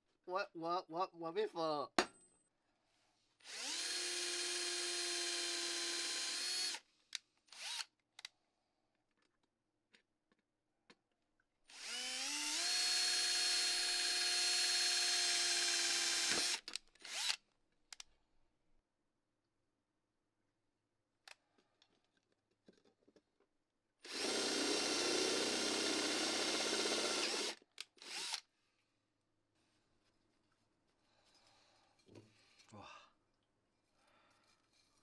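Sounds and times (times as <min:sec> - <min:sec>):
cordless drill drilling steel: 0:03.4 - 0:06.8, 0:07.5 - 0:07.9, 0:11.7 - 0:17.4, 0:24.0 - 0:28.5.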